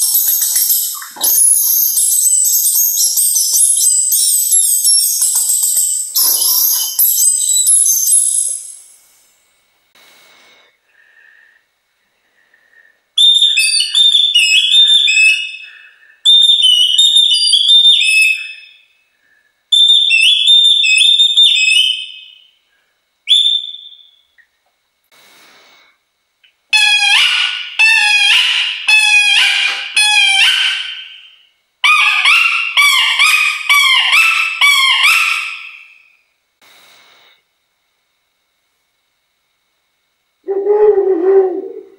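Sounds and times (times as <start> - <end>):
wooden bird call chirping: 0.0 - 8.7, 13.2 - 15.7, 16.3 - 18.8, 23.3 - 24.2, 26.8 - 36.1.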